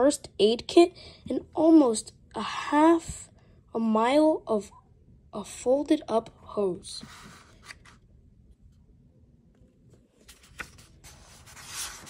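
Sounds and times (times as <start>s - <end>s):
page rustling: 7.0s - 8.0s, 9.9s - 12.0s.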